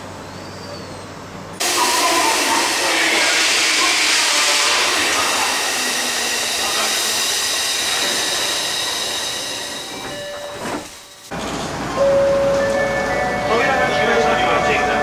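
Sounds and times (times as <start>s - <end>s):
train and station hiss: 0.0s - 15.0s.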